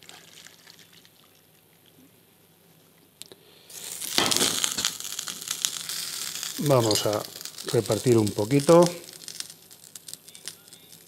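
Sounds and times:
hot oil sizzling in a frying pan: 3.7 - 11.0.

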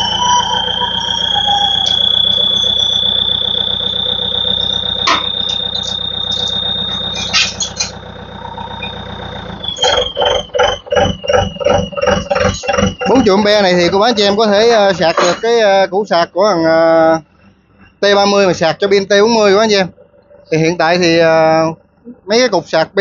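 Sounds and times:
short pulses: 0.0 - 15.8
electric lift motor whining: 0.0 - 15.9.

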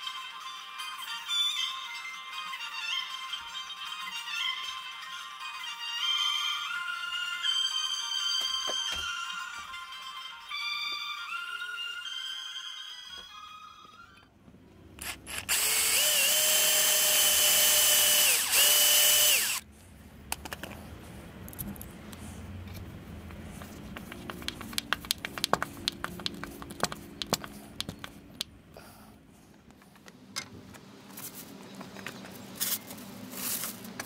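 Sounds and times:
cordless drill whining: 15.0 - 19.6.

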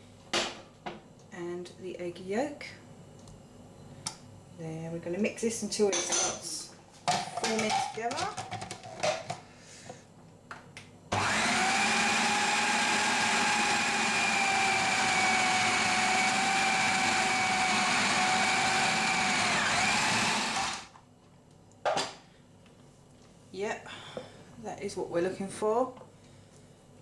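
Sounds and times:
food processor motor whining: 11.1 - 20.9.

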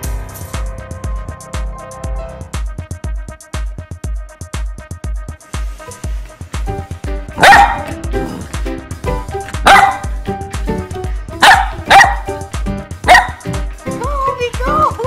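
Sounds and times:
background music with steady beat: 0.0 - 15.0
puppy barking: 7.4 - 8.0, 9.6 - 10.2, 11.4 - 12.4, 13.0 - 13.5.

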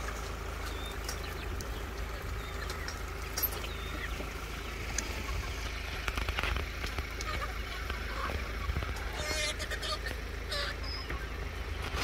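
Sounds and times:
steady low rumble: 0.0 - 9.2
chickens clucking and chirping: 0.0 - 12.0.

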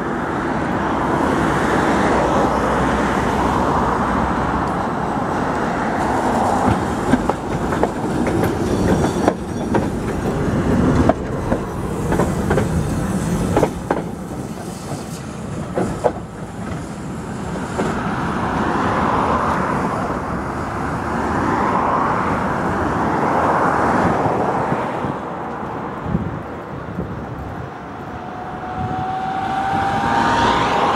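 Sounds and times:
tram running hum: 0.0 - 30.9
tram wheels clicking over rail joints: 4.5 - 18.7.

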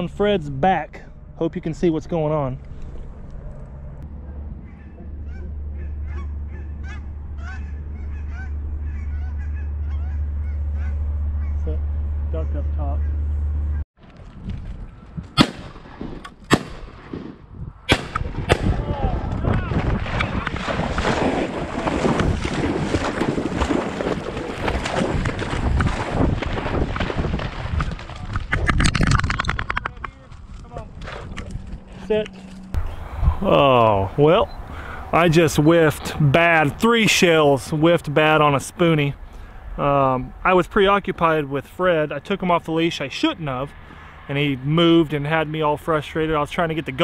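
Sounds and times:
steady low rumble: 0.0 - 16.0
wind buffeting: 0.0 - 47.0
geese honking: 4.2 - 13.8.

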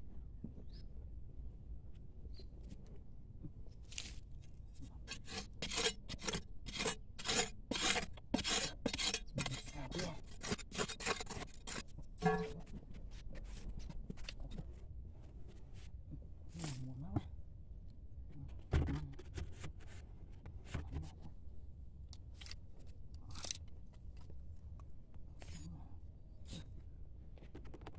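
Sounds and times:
shovel scraping sandy soil: 5.1 - 12.6.

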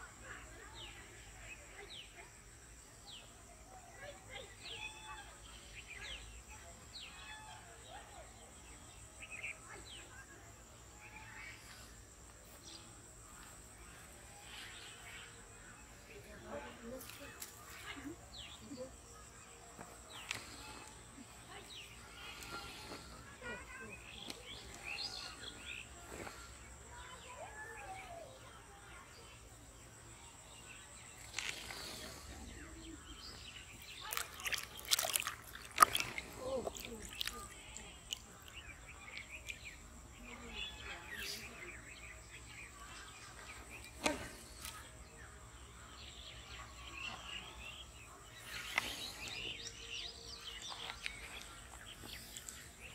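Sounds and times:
fish splashing in water: 33.8 - 38.2.

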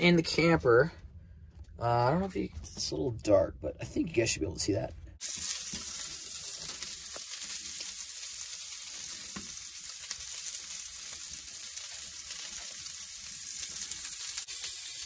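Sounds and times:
sausages sizzling in a skillet: 5.2 - 15.0.

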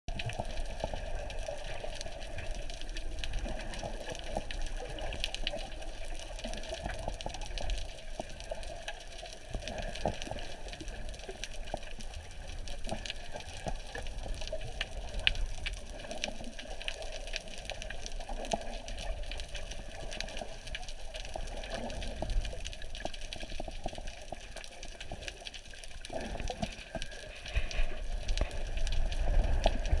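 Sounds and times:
muffled underwater water rush: 0.1 - 30.0
small underwater clicks and crackles: 0.1 - 30.0.

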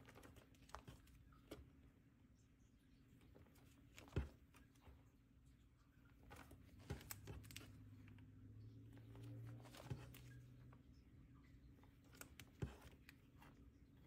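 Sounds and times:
plastic binder pages turning: 0.0 - 1.7, 3.2 - 5.0, 6.1 - 10.8, 11.8 - 13.7
faint low hum: 0.0 - 14.0.

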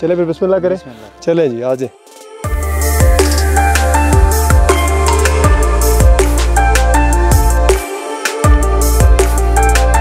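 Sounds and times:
steady drum beat: 2.2 - 10.0
synth melody: 2.4 - 10.0
heavy bass: 2.5 - 7.9, 8.5 - 10.0.

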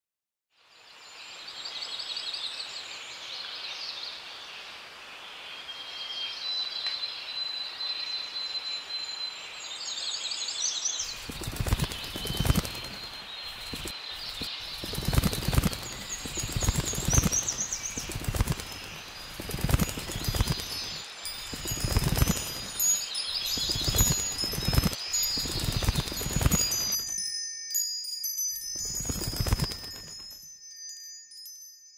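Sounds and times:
high pulsed chirping trills: 11.0 - 31.0
thin high ringing tones: 11.1 - 31.9.

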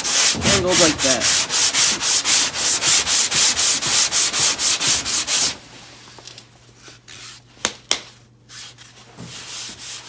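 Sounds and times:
hand sanding on metal panel: 0.0 - 5.6, 8.5 - 10.0.

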